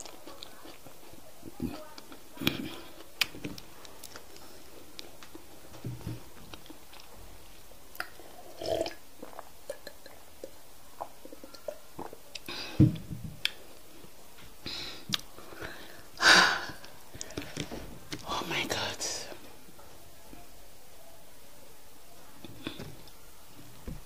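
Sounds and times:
chewing: 0:00.0 - 0:05.6, 0:06.5 - 0:07.2, 0:07.9 - 0:12.6, 0:15.0 - 0:15.8
lip smacks: 0:15.1 - 0:15.3.

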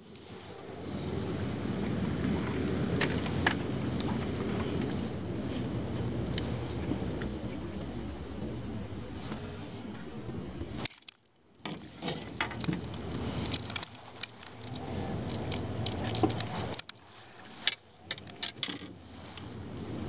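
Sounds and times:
low background rumble: 0:00.0 - 0:20.0
fishing gear clicks and knocks: 0:02.4 - 0:05.7, 0:10.8 - 0:19.4.

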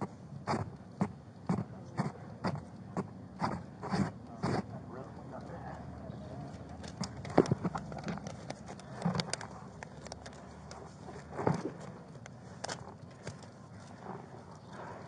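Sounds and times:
clothing rubbing on microphone: 0:03.4 - 0:04.7.

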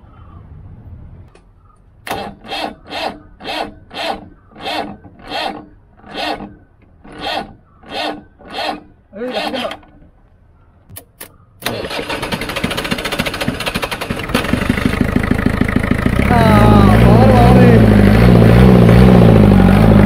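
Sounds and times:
hand tool rasping on metal: 0:02.2 - 0:09.8.

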